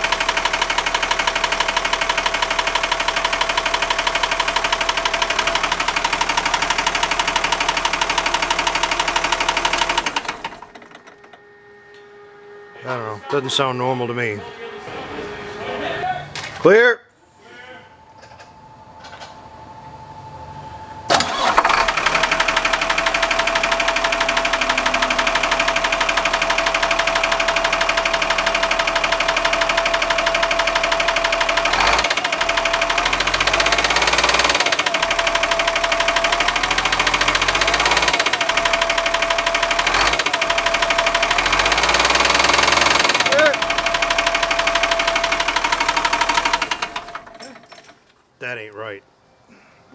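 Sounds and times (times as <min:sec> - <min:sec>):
diesel engine knocking: 0:00.0 - 0:11.3, 0:21.4 - 0:47.4.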